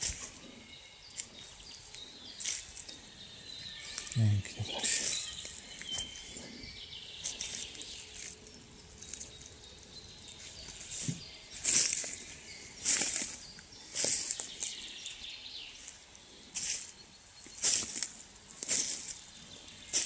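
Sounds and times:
footsteps in dry leaves: 0.0 - 20.0.

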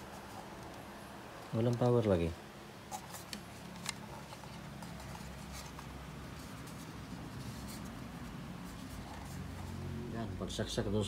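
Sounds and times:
faint handling clicks and scraping: 2.9 - 9.9.

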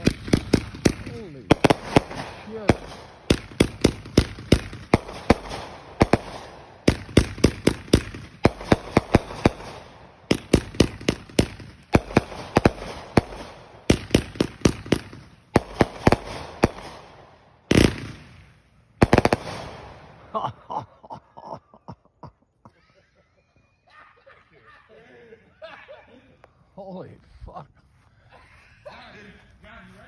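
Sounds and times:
fireworks bangs: 0.0 - 20.6.

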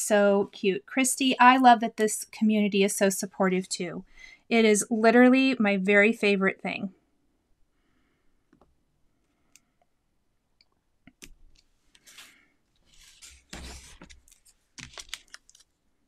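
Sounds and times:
paper scraping and rustling: 12.0 - 15.7.

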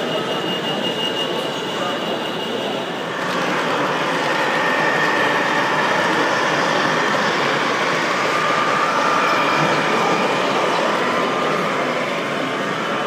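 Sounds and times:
exhibition hall background noise: 0.0 - 13.0
faint high motor whine: 0.0 - 13.0
model train rolling rumble: 2.6 - 13.0.

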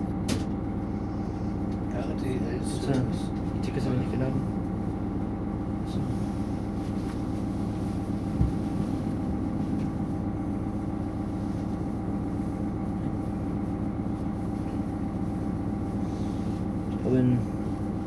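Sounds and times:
diesel railcar engine idling: 0.0 - 18.0.

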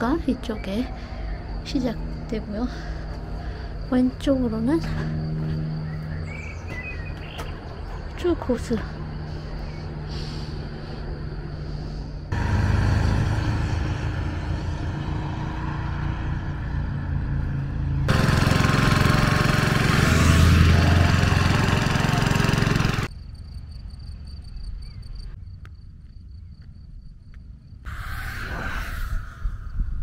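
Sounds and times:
insects chirping: 0.0 - 17.9, 23.0 - 30.0
motor humming: 17.4 - 23.1.

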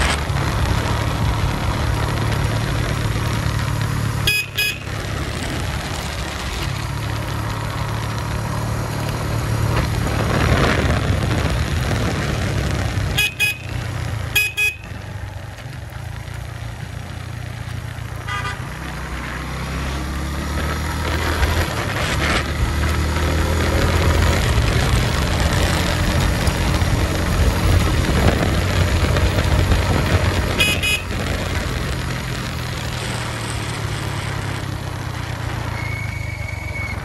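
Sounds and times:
motorcycle engine running: 0.0 - 37.0
horn toots: 4.2 - 5.0, 13.1 - 15.0, 18.2 - 18.9, 30.4 - 31.2.

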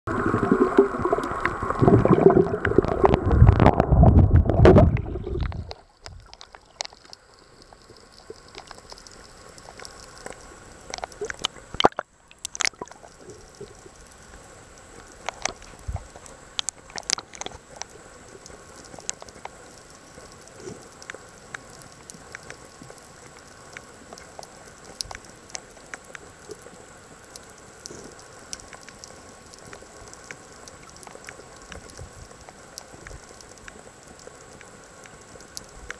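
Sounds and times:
underwater water churning: 0.1 - 7.1
underwater clicks and crackles: 0.1 - 35.9.

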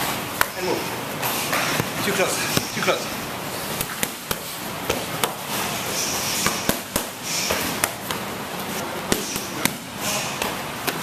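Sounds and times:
gym background noise: 0.0 - 11.0
punches slapping focus mitts: 3.7 - 5.5, 6.4 - 8.3, 9.0 - 11.0.

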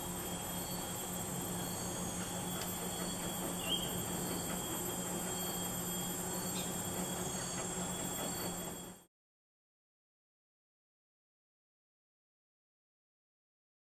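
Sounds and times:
insects droning: 0.0 - 9.0
steady low hum: 0.0 - 9.0.

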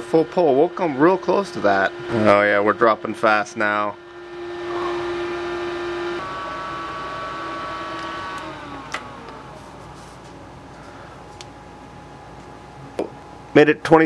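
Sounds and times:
electric motor humming: 0.0 - 10.3.

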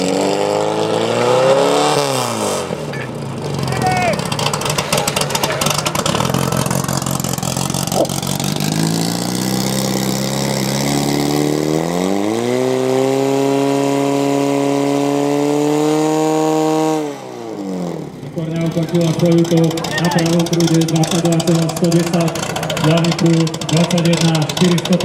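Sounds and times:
fire pump engine running: 2.7 - 12.3, 18.1 - 25.0.

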